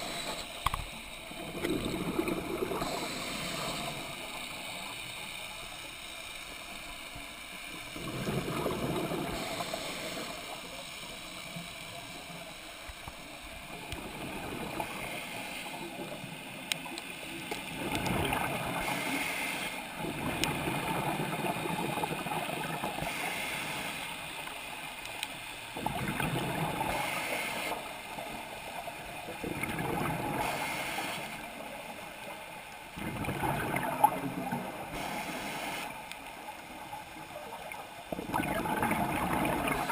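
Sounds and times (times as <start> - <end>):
steady hiss: 0.0 - 33.0, 33.6 - 39.9
underwater exhaled bubbles rushing: 1.3 - 4.2, 7.9 - 10.3, 13.6 - 17.0, 17.6 - 23.2, 25.8 - 27.7, 29.1 - 30.8, 32.9 - 35.9, 36.8 - 39.9.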